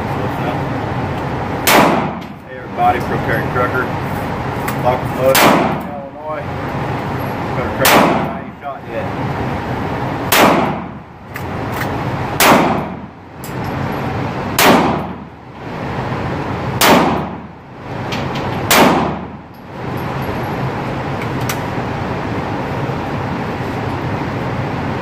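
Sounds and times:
handgun shots echoing indoors: 1.6 - 2.3, 5.3 - 5.9, 7.8 - 8.4, 10.3 - 11.0, 12.4 - 13.1, 14.5 - 15.3, 16.8 - 17.5, 18.4 - 19.4.

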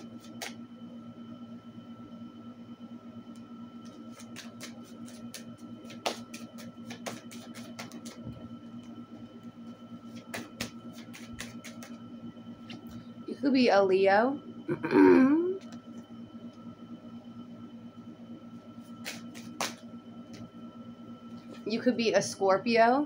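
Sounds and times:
cards being shuffled: 0.0 - 0.6, 3.9 - 8.4, 10.1 - 12.0, 18.9 - 19.8
steady low hum: 0.0 - 23.0.

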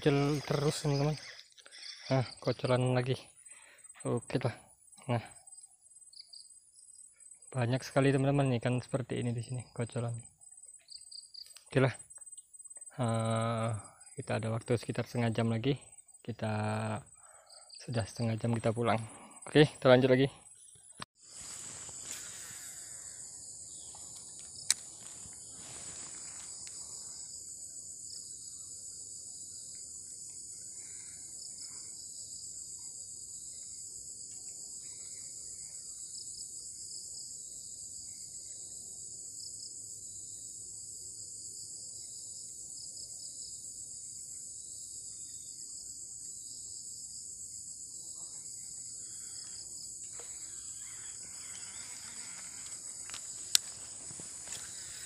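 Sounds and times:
insects buzzing: 0.0 - 55.0.

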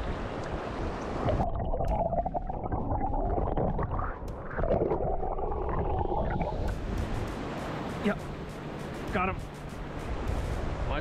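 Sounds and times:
underwater sloshing and bubbling: 0.0 - 7.0
low underwater rumble: 1.2 - 6.8.

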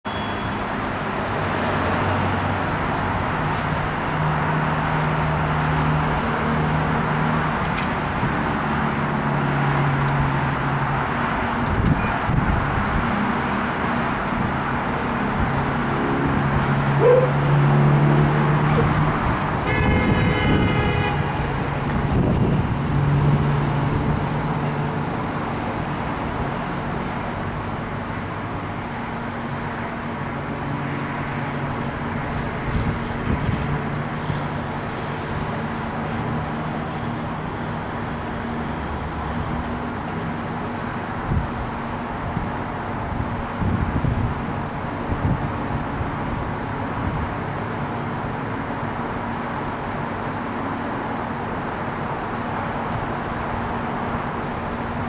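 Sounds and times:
road traffic noise: 0.0 - 55.0
car horn: 0.1 - 0.7, 11.9 - 12.4, 19.6 - 21.7.

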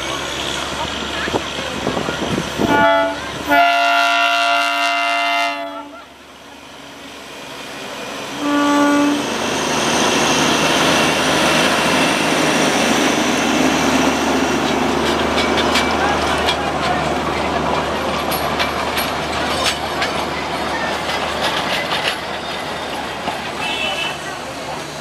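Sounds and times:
train passing by: 0.0 - 25.0
locomotive horn blasts: 2.6 - 6.1, 8.4 - 9.3, 23.6 - 24.2.

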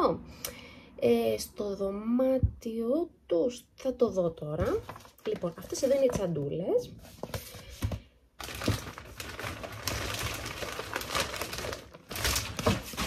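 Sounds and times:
gift bags rustling: 4.8 - 6.4, 7.1 - 13.0.

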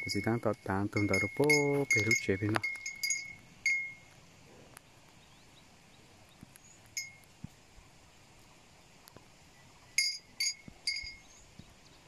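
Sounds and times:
faint cow bell clank: 0.0 - 4.1, 7.0 - 7.2, 9.9 - 11.4.

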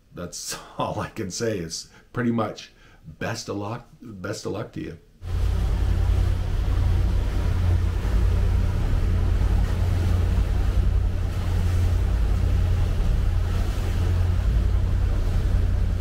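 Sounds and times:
boat engine drone: 5.2 - 16.0
water noise: 5.2 - 16.0
wind on microphone: 5.2 - 16.0.

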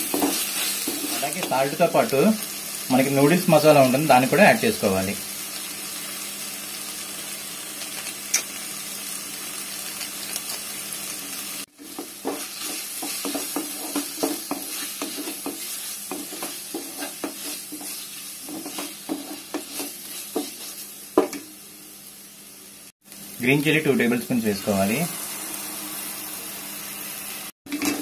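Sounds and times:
vegetables sizzling in oil: 0.0 - 28.0
spatula scraping pan: 11.7 - 21.0.

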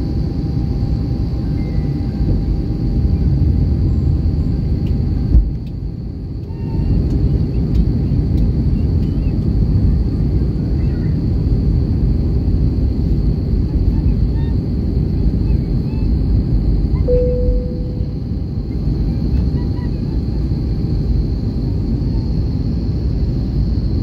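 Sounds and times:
faint high whine: 0.0 - 7.0, 15.4 - 19.2
airplane cabin engine rumble: 0.0 - 24.0.

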